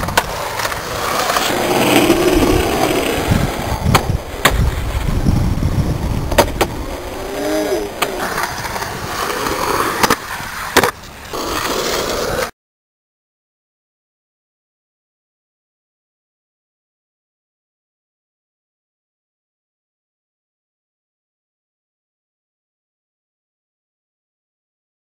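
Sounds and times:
skateboard clacks: 0.0 - 5.2, 6.0 - 12.5
skateboard wheels rolling on concrete: 0.0 - 12.6.

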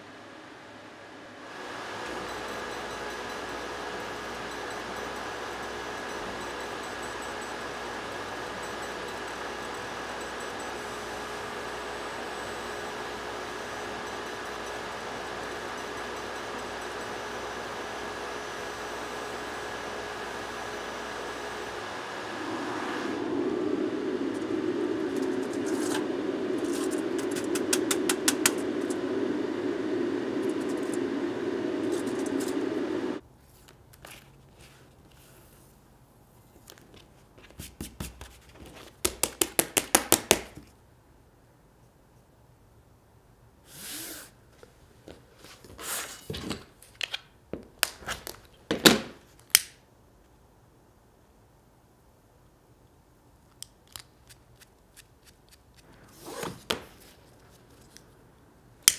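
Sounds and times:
laser cutter running: 1.4 - 33.2.

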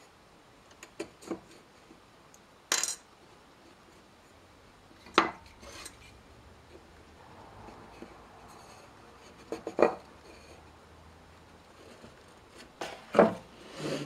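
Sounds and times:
wooden staves knocking and clattering: 9.3 - 10.4.

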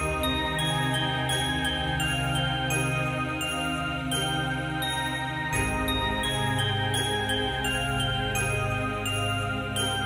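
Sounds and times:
background music with high melody: 0.0 - 10.0.

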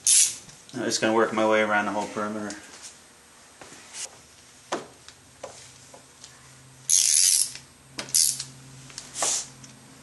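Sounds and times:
ratchet pawl clicking: 6.9 - 8.5.

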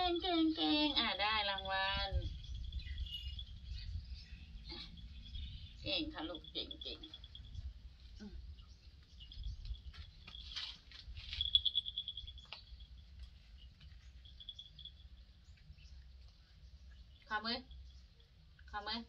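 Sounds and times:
small bird trilling: 0.0 - 7.6
faint rustles and clicks: 2.2 - 18.6.

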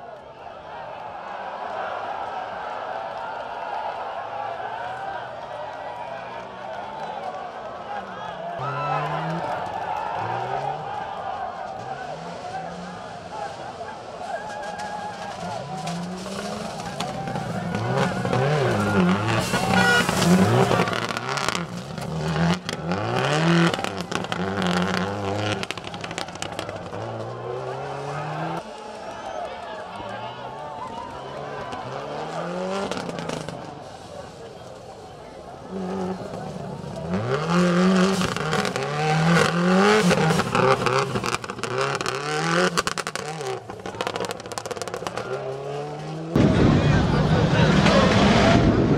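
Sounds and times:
rally car engine revving hard: 15.4 - 28.6, 31.4 - 33.7, 35.6 - 48.9
tyres hissing on loose dirt: 33.6 - 35.4.

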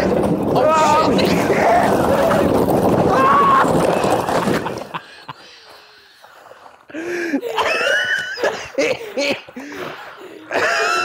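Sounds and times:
wheezing laughter: 7.0 - 11.0.

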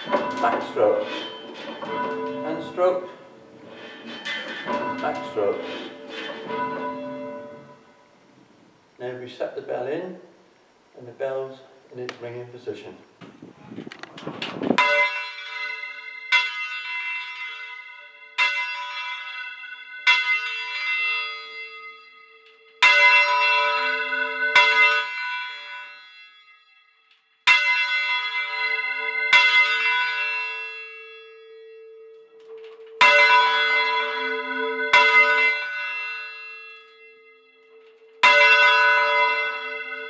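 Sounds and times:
church bell ringing: 0.0 - 8.2, 14.8 - 40.0
lingering bell hum: 0.0 - 8.9, 31.1 - 40.0.

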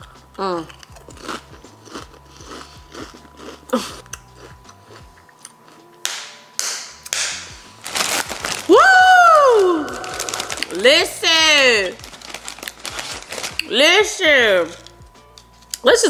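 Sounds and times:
chewing chip crunches: 0.6 - 5.8, 7.8 - 8.7, 9.8 - 10.8, 11.9 - 13.7
person exclaiming woo: 8.7 - 10.7.

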